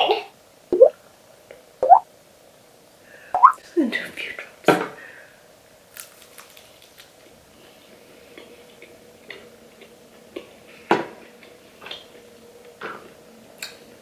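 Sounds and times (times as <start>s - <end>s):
chewing crispy chicken: 5.9s - 7.4s.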